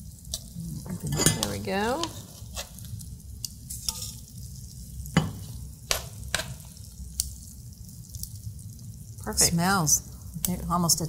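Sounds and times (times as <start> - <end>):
sauce simmering in a skillet: 0.0 - 11.0.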